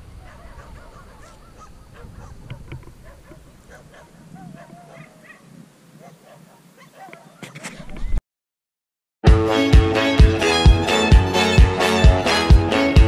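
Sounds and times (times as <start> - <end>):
birds calling: 0.0 - 7.9.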